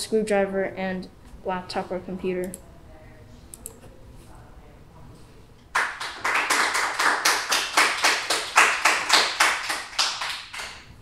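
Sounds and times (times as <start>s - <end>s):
hands clapping: 5.7s - 10.9s.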